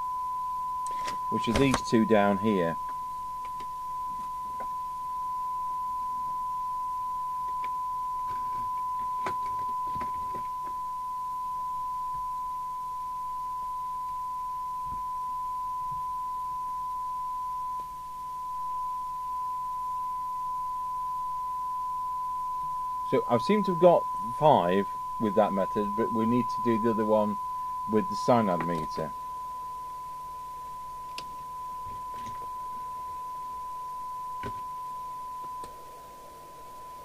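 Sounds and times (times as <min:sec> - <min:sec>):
steady test tone: 0:00.0 - 0:37.0.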